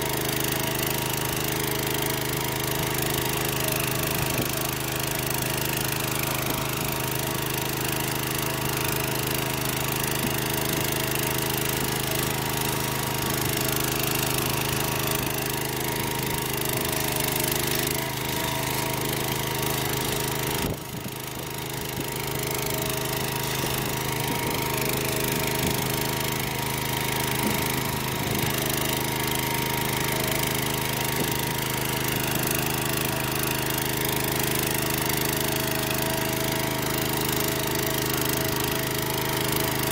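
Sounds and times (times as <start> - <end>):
small tractor engine running: 0.0 - 39.9.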